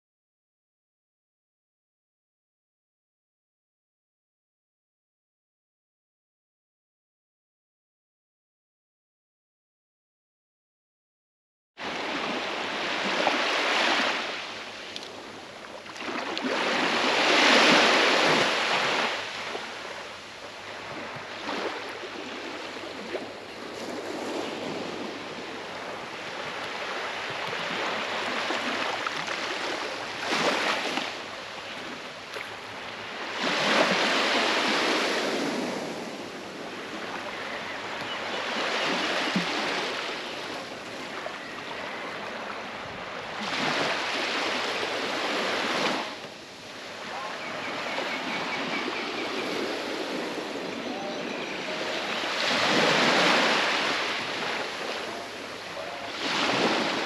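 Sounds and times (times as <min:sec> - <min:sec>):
small waves washing on beach: 0:11.8 - 0:57.0.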